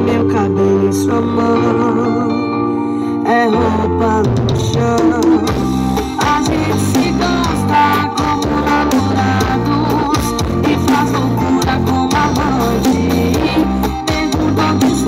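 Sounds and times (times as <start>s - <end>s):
guitar: 0.0s - 15.0s
loud song with singing: 0.0s - 15.0s
drums: 3.6s - 15.0s.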